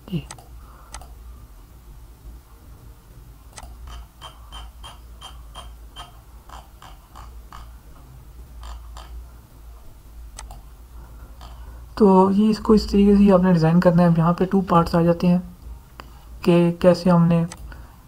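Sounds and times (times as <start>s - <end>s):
faint low hum: 0.0s - 18.0s
computer mouse clicks: 0.3s - 1.2s, 3.5s - 4.0s, 10.4s - 10.6s, 17.5s - 17.7s.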